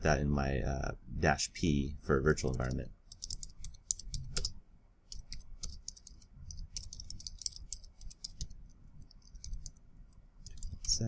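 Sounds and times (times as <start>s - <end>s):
keyboard keys clicking: 2.4s - 9.8s, 10.4s - 11.0s.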